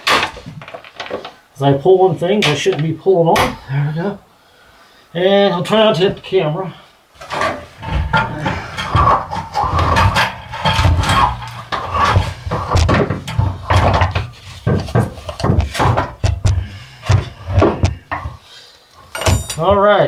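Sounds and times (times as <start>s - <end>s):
metal shaft clunking and scraping: 7.3s - 18.4s.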